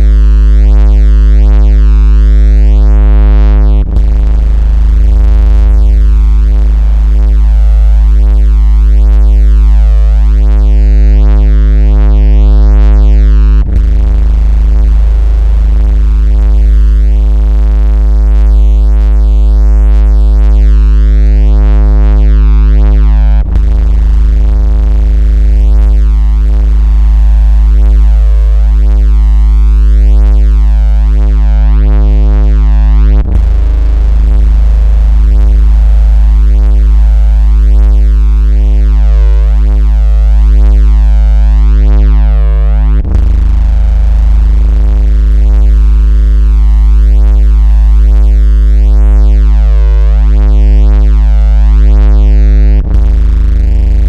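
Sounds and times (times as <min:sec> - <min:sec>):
deep synthetic buzz tone: 0:00.0 - 0:54.0.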